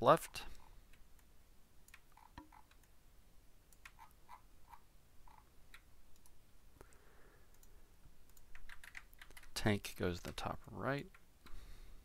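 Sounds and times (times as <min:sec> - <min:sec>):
computer controls clicking: 0:00.6 - 0:03.0, 0:03.7 - 0:09.6.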